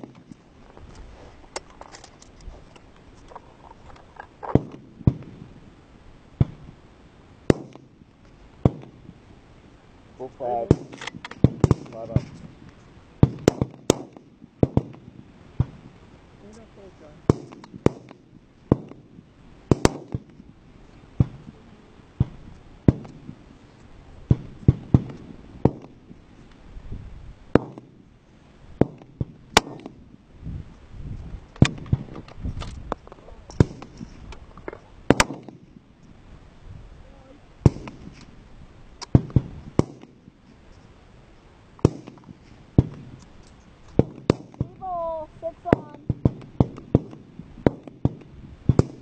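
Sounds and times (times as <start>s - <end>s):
rifle shots with echo: 7.5s - 7.9s, 10.6s - 12.3s, 13.2s - 15.8s, 17.2s - 19.1s, 19.7s - 20.3s, 28.8s - 30.0s, 35.1s - 35.7s, 37.6s - 38.1s, 39.1s - 40.2s, 41.8s - 42.2s, 44.0s - 44.8s, 45.7s - 49.0s.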